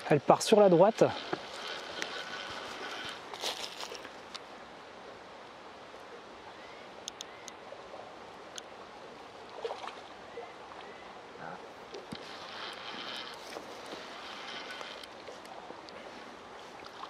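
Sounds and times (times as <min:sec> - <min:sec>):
faint watery sounds: 0:00.0 - 0:17.0
light clicks: 0:07.0 - 0:07.6.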